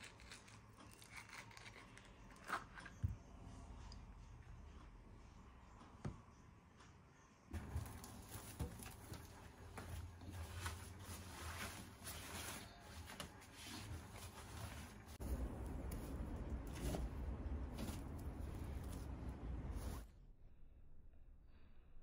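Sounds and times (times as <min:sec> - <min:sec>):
damp laundry rustling: 0:07.6 - 0:20.1
low background rumble: 0:15.0 - 0:20.8.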